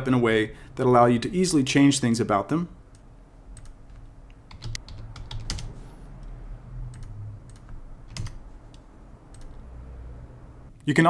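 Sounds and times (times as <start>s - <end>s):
keyboard and mouse clicking: 2.9s - 6.3s, 6.9s - 9.6s.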